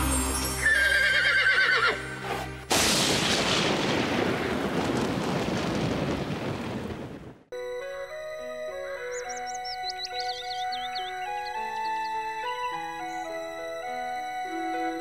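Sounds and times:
horse whinnying: 0:00.6 - 0:02.0
held music notes: 0:07.5 - 0:15.0.

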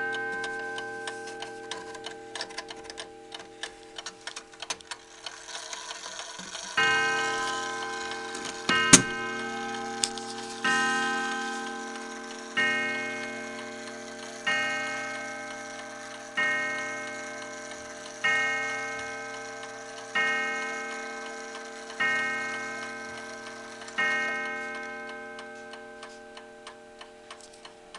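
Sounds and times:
clock ticking: 0:00.0 - 0:27.9
mantel clock striking: 0:00.0 - 0:27.9.

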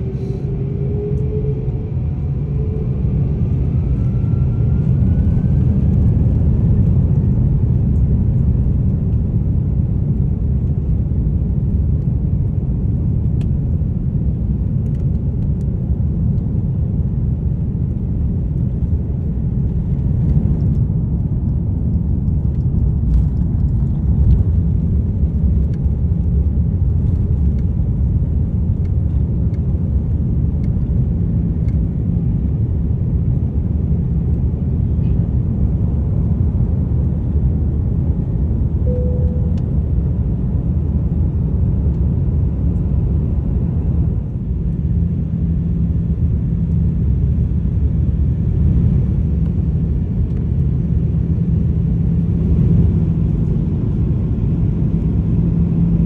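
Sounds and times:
jet engines roaring: 0:00.0 - 0:07.7.

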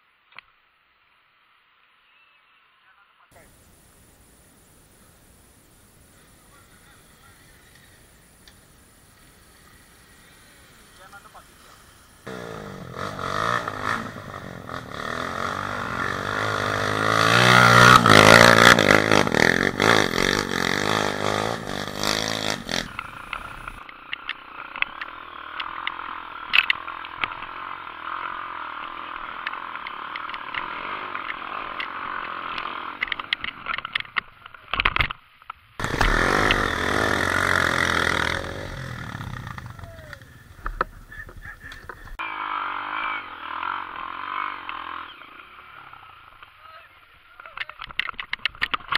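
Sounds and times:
dirt bike engine revving: 0:06.2 - 0:33.6, 0:35.8 - 0:46.8.

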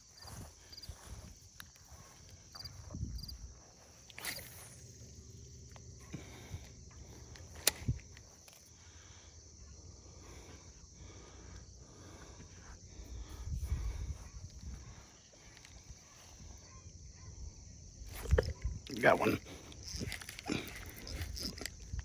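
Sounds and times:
faint footsteps on stony ground: 0:00.0 - 0:04.9.

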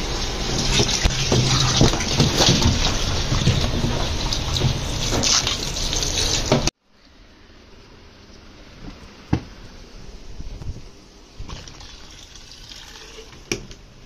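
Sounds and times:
water gushing into washing machine: 0:00.0 - 0:06.7, 0:11.4 - 0:13.5
running water hiss: 0:11.4 - 0:13.6.

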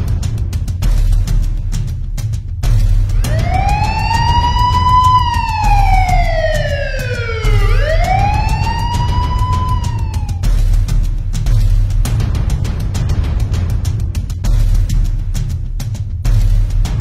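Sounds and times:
music with low pulsing beat: 0:00.0 - 0:17.0
police siren wailing: 0:03.1 - 0:10.4.

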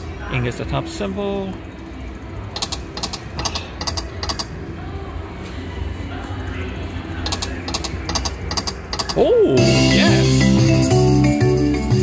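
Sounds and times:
low casino hum: 0:00.0 - 0:12.0
slot machine reels ticking: 0:02.6 - 0:04.5, 0:07.3 - 0:09.2.

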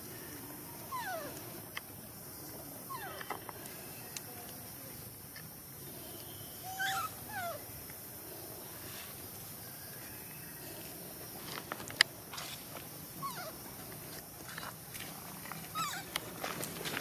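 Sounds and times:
baby monkey calls: 0:00.9 - 0:01.4, 0:02.9 - 0:03.3, 0:06.6 - 0:07.7, 0:13.2 - 0:13.6, 0:15.7 - 0:16.2.

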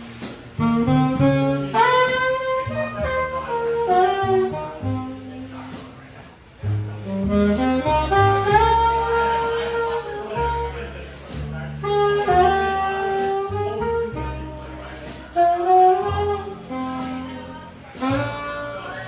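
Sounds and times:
plucked upright bass: 0:00.0 - 0:19.0
saxophone melody: 0:00.0 - 0:19.0.

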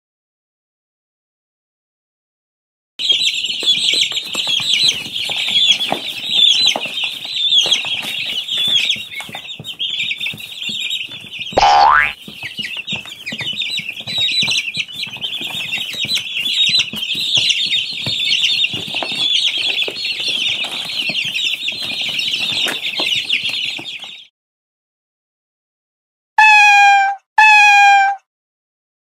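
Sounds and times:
chicks peeping: 0:03.0 - 0:24.3.

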